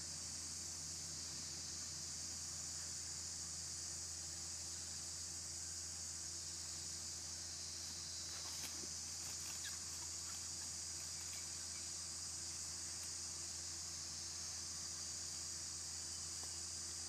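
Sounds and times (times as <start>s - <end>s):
insect chorus buzzing: 0.0s - 17.0s
low steady hum: 0.0s - 17.0s
rustling dry leaves: 8.3s - 13.8s.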